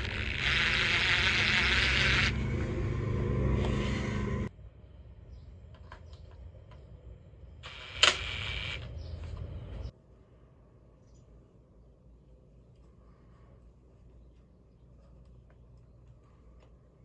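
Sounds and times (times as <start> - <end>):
cordless drill running: 0.0 - 3.0.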